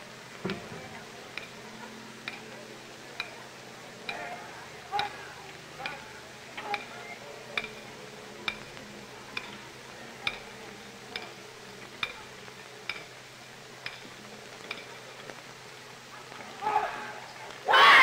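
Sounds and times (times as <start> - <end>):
drumstick clicks: 3.2 - 3.4, 7.6 - 9.6, 10.2 - 10.5.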